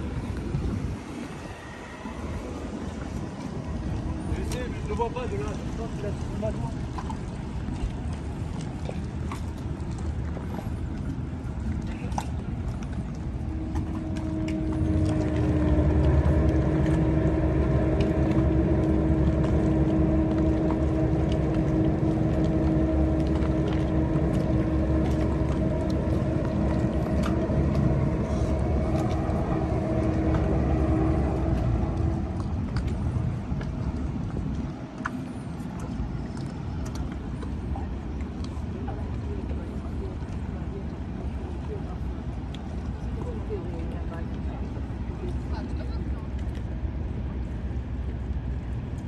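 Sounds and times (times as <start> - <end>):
low machinery rumble: 0.0 - 49.0
steady machinery hum: 13.0 - 41.0.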